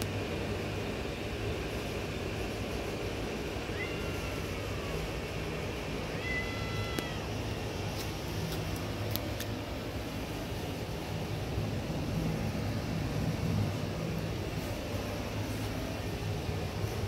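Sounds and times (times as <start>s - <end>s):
cat meowing: 3.7s - 4.6s, 6.1s - 7.4s.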